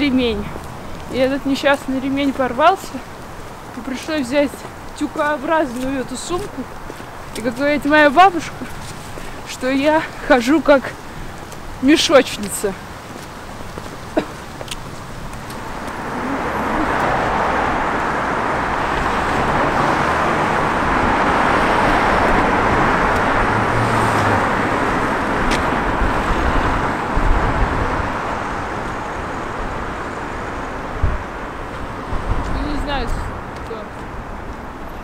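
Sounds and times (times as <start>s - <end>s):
cars driving past: 0.0s - 35.0s.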